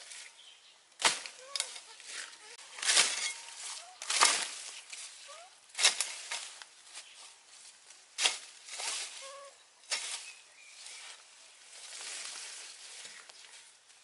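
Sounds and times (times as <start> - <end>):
rustle of cut leaves: 0.0 - 0.4, 1.0 - 14.0
hoe chopping into soil: 1.0 - 5.0, 5.8 - 6.6.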